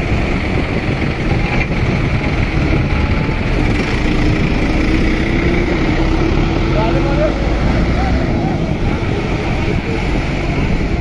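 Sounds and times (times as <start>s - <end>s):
tractor diesel engine idling: 0.0s - 10.8s.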